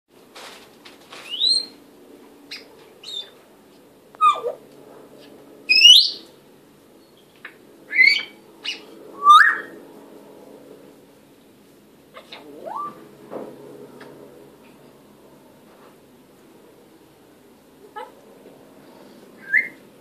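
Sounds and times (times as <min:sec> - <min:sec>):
parrot whistling and chirping: 0:01.3 - 0:01.8, 0:02.5 - 0:03.4, 0:04.2 - 0:04.6, 0:05.7 - 0:06.2, 0:07.9 - 0:09.7, 0:19.4 - 0:19.8.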